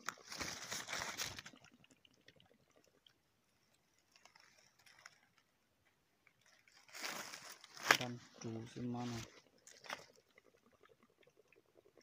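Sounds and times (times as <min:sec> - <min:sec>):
dry leaves crunching and rustling: 0:06.8 - 0:08.1.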